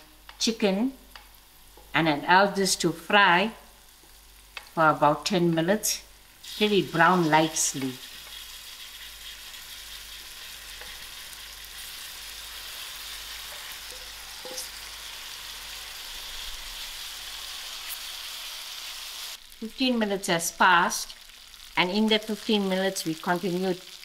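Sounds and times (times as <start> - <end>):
chicken sizzling in oil: 6.1 - 24.0.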